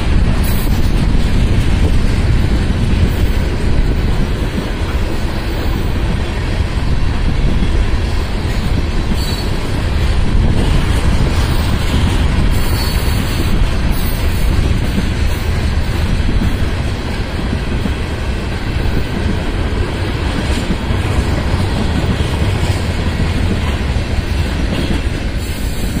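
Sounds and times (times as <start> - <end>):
freight train wheels rolling: 0.0 - 26.0.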